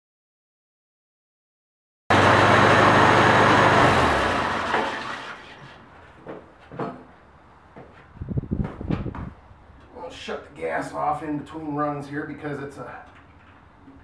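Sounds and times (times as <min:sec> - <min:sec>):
tractor engine running: 0:02.1 - 0:05.8.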